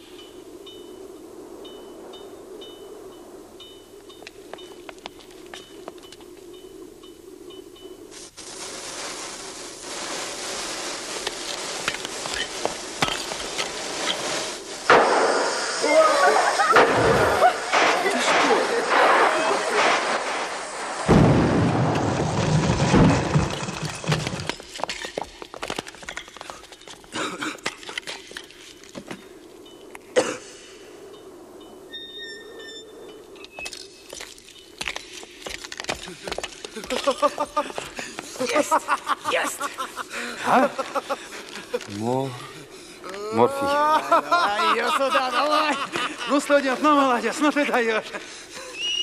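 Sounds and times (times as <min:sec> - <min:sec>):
sparks crackling and popping: 0:03.9 - 0:30.8, 0:33.2 - 0:49.0
debris and glass clinking: 0:11.2 - 0:14.4, 0:21.9 - 0:28.7, 0:33.4 - 0:37.4
explosion burst: 0:12.8 - 0:24.4
person coughing: 0:27.1 - 0:27.8, 0:30.2 - 0:30.6.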